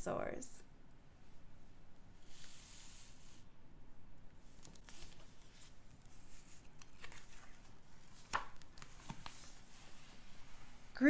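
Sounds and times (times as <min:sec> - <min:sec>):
book pages rustling: 0:04.4 - 0:10.8.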